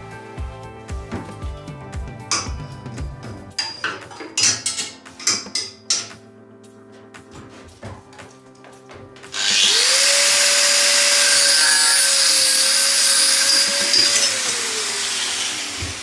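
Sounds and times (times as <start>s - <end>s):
angle grinder grinding steel: 9.3s - 16.0s.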